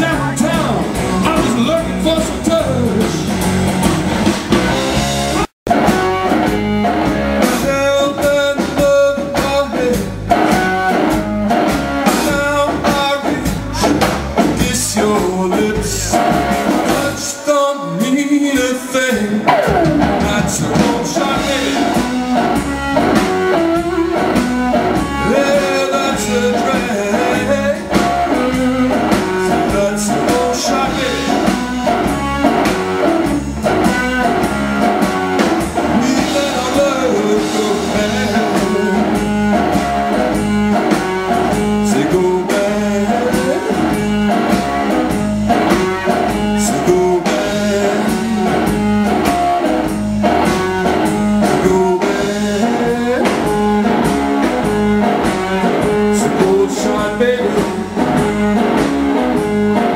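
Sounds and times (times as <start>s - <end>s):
electric bass: 0.0s - 17.3s, 19.2s - 59.9s
drum kit: 0.0s - 59.9s
electric guitar: 0.0s - 59.9s
person singing: 12.0s - 49.7s, 50.3s - 59.9s.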